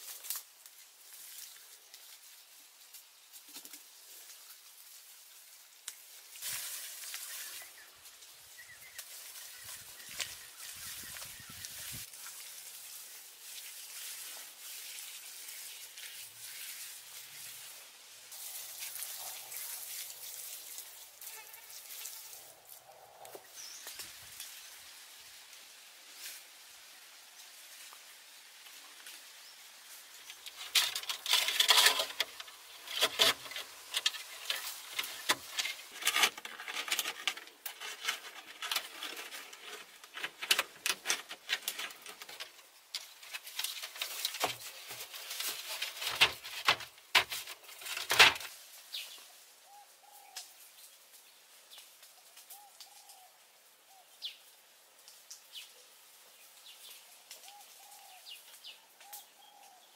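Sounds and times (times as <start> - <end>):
bamboo slats knocking and clattering: 30.3 - 48.5.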